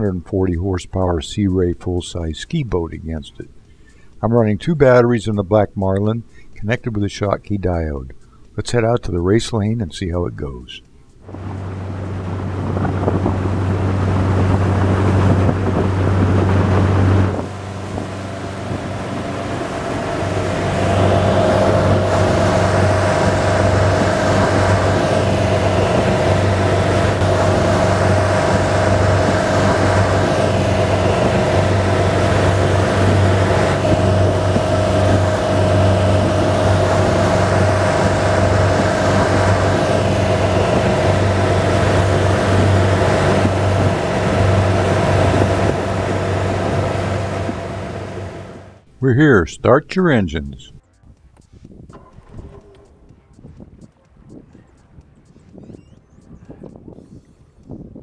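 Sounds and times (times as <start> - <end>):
boat engine running: 11.2 - 50.6
wind on microphone: 11.3 - 48.7, 51.5 - 58.0
water rushing past hull: 11.3 - 48.8.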